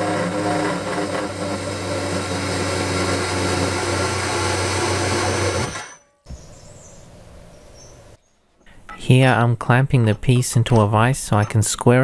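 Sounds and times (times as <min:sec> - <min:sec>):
circular saw cutting steel: 0:00.0 - 0:06.3.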